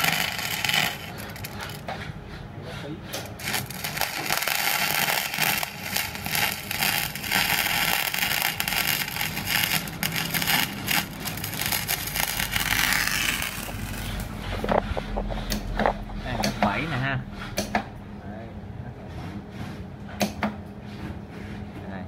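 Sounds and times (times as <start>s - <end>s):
welding arc crackling: 0.0s - 1.9s, 3.2s - 14.8s
welder low hum: 0.0s - 17.3s.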